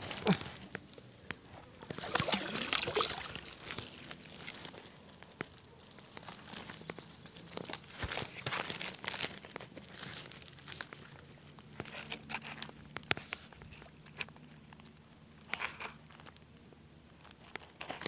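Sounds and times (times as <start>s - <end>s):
rustling dry leaves and brush: 0.0s - 18.0s
small clicks and knocks of gear: 3.6s - 18.0s.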